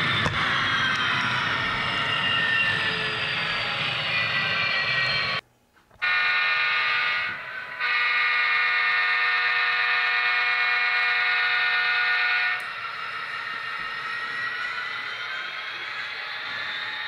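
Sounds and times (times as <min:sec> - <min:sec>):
model train air horn: 0:06.0 - 0:12.8
model locomotive running sound: 0:06.0 - 0:17.0.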